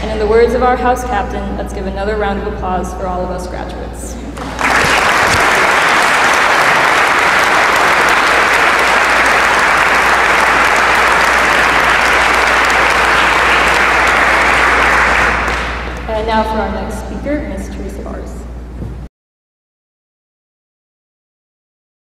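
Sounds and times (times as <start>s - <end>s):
audience applauding: 4.4s - 16.1s.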